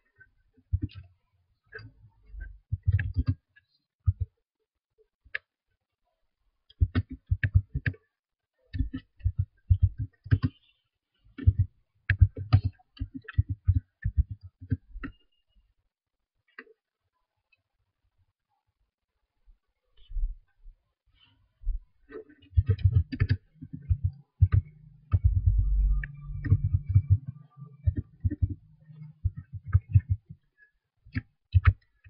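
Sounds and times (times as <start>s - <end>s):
computer keyboard typing: 22.6s - 30.4s, 31.1s - 31.8s.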